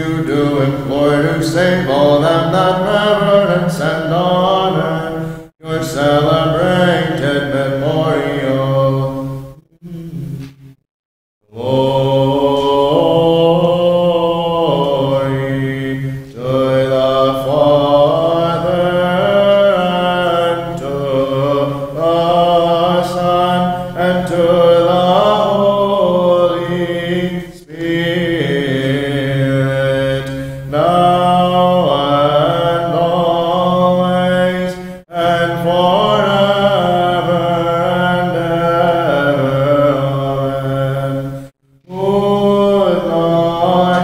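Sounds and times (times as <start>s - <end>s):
low held drone note: 9.5s - 10.6s
male voices chanting: 11.5s - 44.0s.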